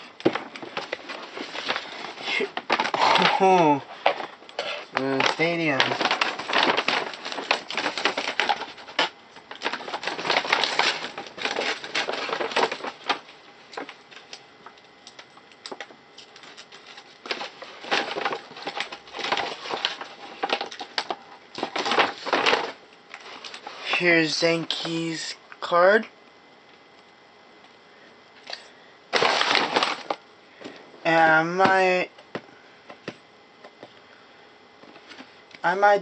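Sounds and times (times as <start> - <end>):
paper crumpling and rustling: 0.2 - 25.1, 28.4 - 30.8.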